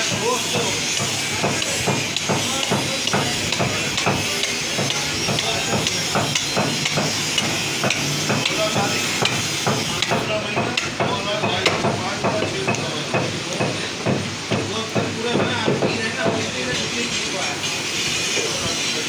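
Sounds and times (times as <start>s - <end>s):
cleaver chopping on wooden block: 0.6s - 14.7s.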